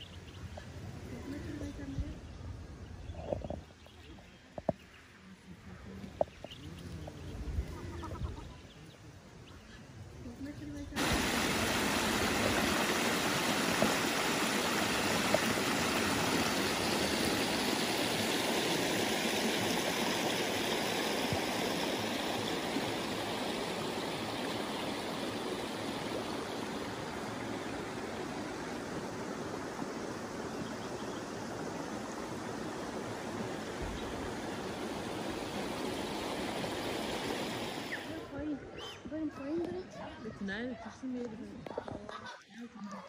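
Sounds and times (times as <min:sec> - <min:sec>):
creek water splashing over rocks: 0:11.0 - 0:38.3.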